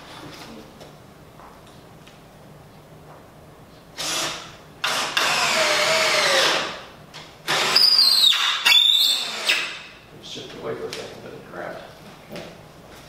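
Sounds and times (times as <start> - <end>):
power drill driving screws into wood: 4.0 - 6.8, 7.4 - 9.9.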